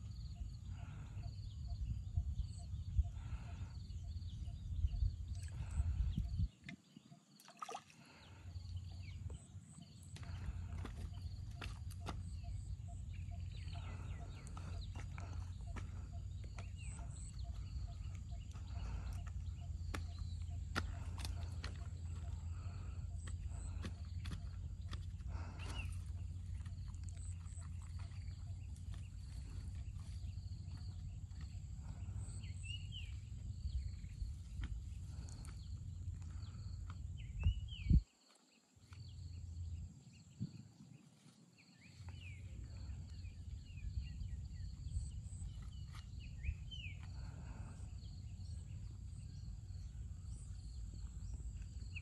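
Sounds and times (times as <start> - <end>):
steady low rumble: 0.0 - 6.6, 8.5 - 38.0, 42.2 - 52.0
bird chirps: 8.5 - 38.2.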